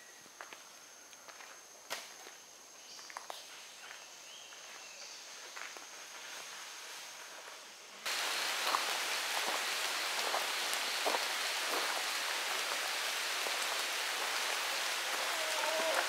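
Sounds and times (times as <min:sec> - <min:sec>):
rain hissing on foliage: 0:06.5 - 0:16.0
drops striking leaves: 0:08.1 - 0:16.0.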